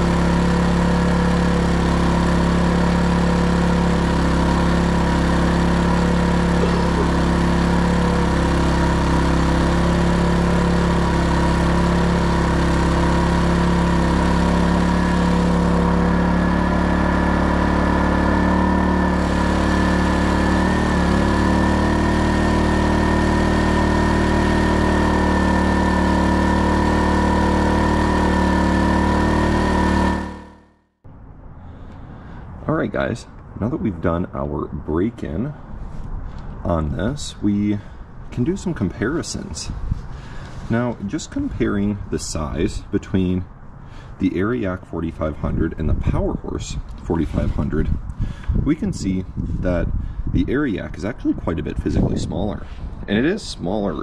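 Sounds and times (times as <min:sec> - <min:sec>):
higher pitched whine: 0:00.0 - 0:08.4
high whine: 0:00.0 - 0:33.8
generator engine running: 0:00.0 - 0:54.0.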